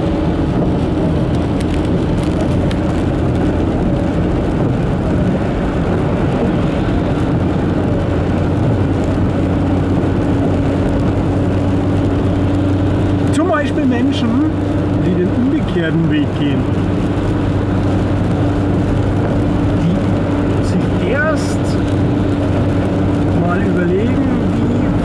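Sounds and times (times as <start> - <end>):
loud mechanical drone: 0.0 - 12.8.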